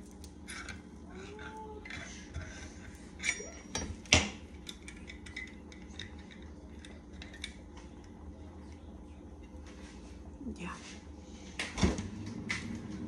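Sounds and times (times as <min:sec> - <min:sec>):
steady low hum: 0:00.0 - 0:13.0
dishes and cutlery clinking: 0:00.5 - 0:07.6.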